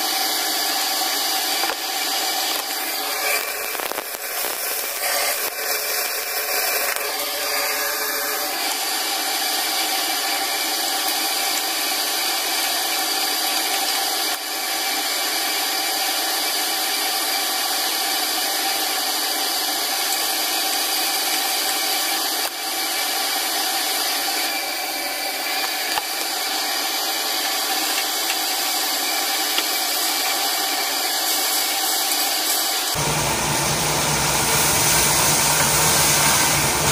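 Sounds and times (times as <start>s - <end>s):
greens sizzling in a pan: 33.0s - 36.9s.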